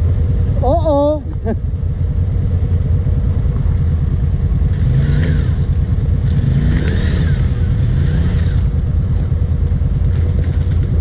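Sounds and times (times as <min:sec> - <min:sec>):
quad engine revving: 0:04.6 - 0:09.0.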